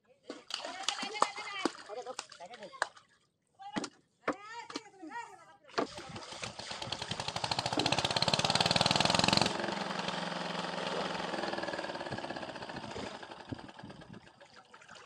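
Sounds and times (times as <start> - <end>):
small engine pulsing: 6.2 - 14.3.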